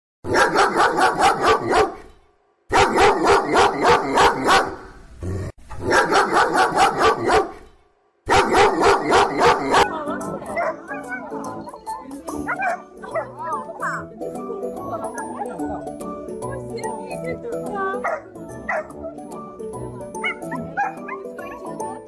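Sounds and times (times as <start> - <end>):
dog barking: 0.3 - 2.1, 2.7 - 4.9, 5.8 - 7.7, 8.3 - 9.9, 12.5 - 13.4, 18.0 - 19.0, 20.2 - 21.6.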